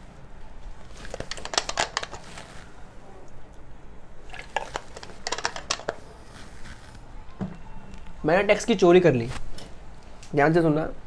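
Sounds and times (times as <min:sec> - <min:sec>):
plastic bottle crackling: 0:00.9 - 0:02.7, 0:04.3 - 0:07.0.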